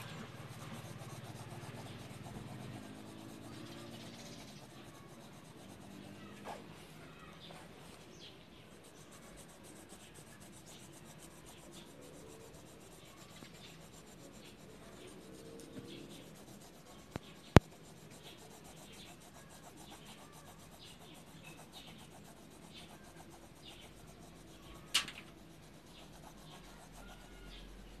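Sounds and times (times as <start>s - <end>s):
pencil scratching on paper: 0.0s - 28.0s
sharp click: 24.9s - 25.3s.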